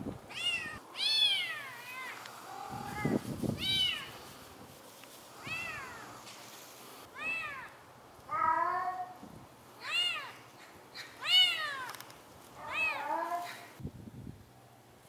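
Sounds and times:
cat meowing: 0:00.3 - 0:04.1, 0:05.4 - 0:06.1, 0:07.2 - 0:09.2, 0:09.8 - 0:10.4, 0:11.2 - 0:12.0, 0:12.6 - 0:13.7.

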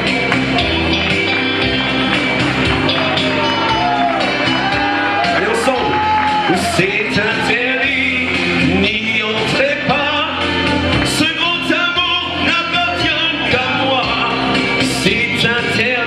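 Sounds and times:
amplified pop backing track: 0:00.0 - 0:16.0
man singing into a microphone: 0:06.5 - 0:16.0.

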